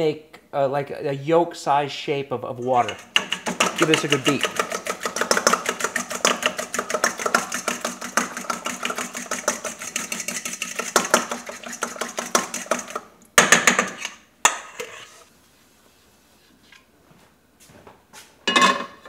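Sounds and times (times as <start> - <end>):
fork beating eggs in metal bowl: 2.6 - 13.1.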